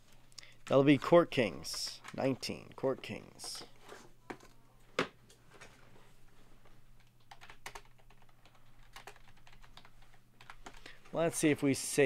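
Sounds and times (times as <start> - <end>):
computer keyboard typing: 7.0 - 11.2.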